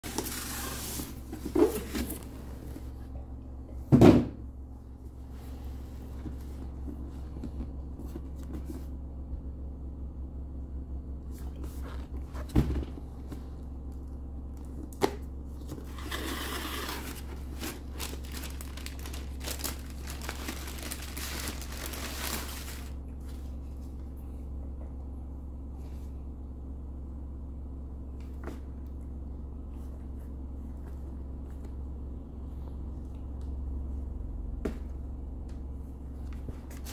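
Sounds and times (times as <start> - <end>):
packaging paper rustling: 0.0 - 2.3, 15.8 - 23.0.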